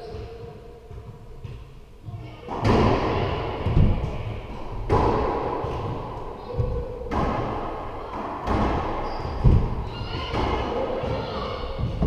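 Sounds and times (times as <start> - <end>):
racquet strikes: 2.4 - 12.0
ball smacking walls: 2.5 - 12.0.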